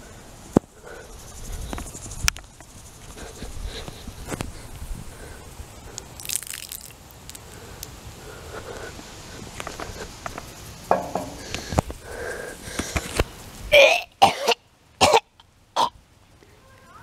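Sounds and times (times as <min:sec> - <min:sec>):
boy retching and gagging: 0:13.7 - 0:15.2.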